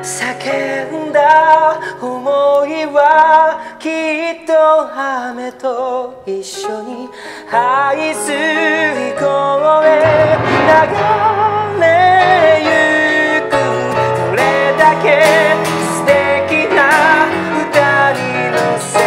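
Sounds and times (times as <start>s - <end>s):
keyboard: 0.0s - 19.0s
man singing a slow ballad: 0.0s - 19.0s
acoustic guitar: 6.4s - 19.0s.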